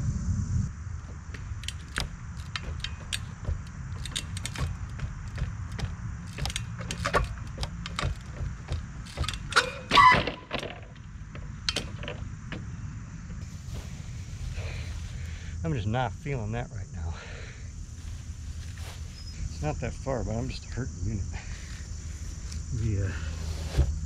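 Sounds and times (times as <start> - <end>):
wind rumble on microphone: 0.0 - 6.5
bike clicks and knocks on pallets: 1.0 - 13.4
squeak-like burst: 9.6 - 10.5.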